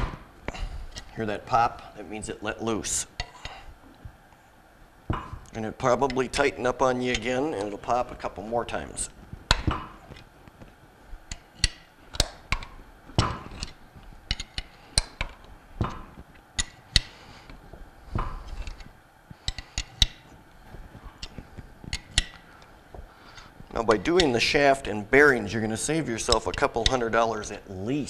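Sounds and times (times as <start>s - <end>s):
wrench metallic clicks and clinks: 13.5s - 15.3s.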